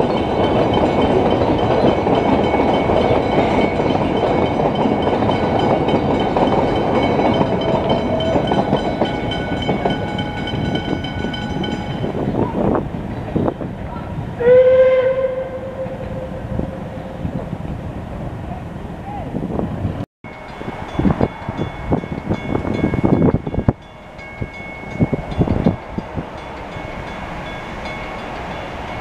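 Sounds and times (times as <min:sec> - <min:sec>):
crossing warning bells ringing: 0:00.0 - 0:13.6, 0:20.2 - 0:29.0
train carriages clickety-clack: 0:00.0 - 0:18.4, 0:19.9 - 0:29.0
steam locomotive whistle: 0:14.4 - 0:17.4.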